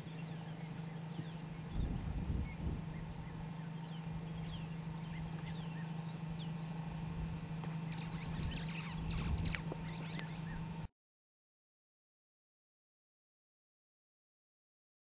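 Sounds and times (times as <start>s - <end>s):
steady low hum: 0.0s - 10.9s
bird chirping and whistling: 7.9s - 10.6s.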